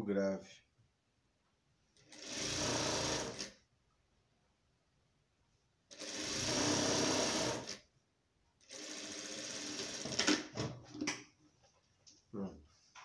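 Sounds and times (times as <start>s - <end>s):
sewing machine stitching: 2.0s - 3.6s, 5.9s - 7.8s, 8.6s - 10.5s.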